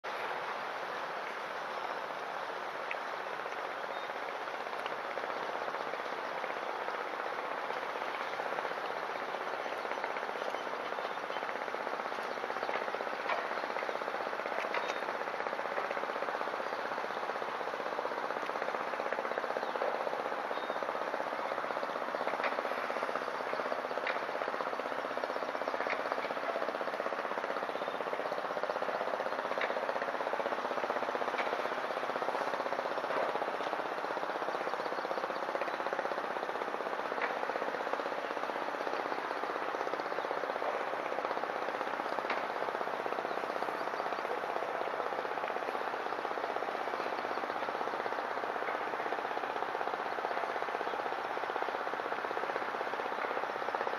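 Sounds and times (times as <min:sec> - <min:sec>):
boat engine rattling: 0:00.1 - 0:53.9.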